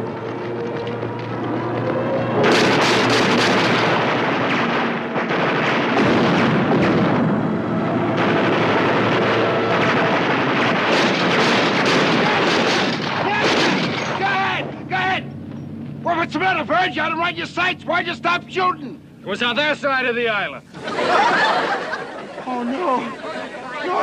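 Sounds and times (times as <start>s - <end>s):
explosions: 1.9s - 14.4s
gunfire: 2.3s - 14.3s.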